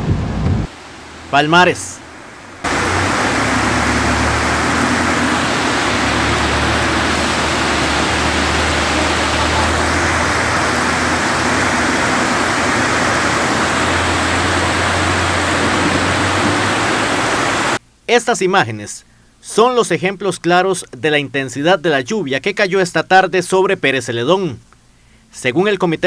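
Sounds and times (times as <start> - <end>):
heavy downpour: 0.0 - 17.8
rushing floodwater: 0.0 - 17.8.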